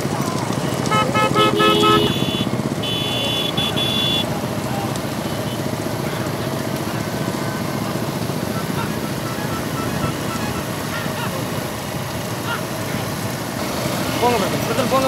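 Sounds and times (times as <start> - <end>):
motorcycle engines din: 0.0 - 15.0
horns beeping: 0.7 - 6.4, 7.2 - 11.6.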